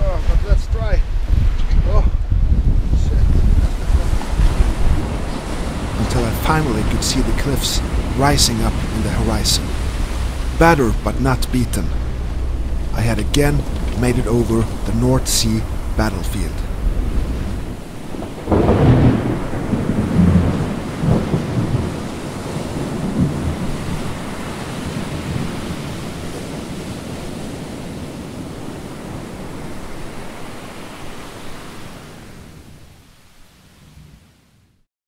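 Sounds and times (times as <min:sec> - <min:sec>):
thunder rumbling: 0:02.1 - 0:27.6
rain hissing: 0:03.4 - 0:26.6.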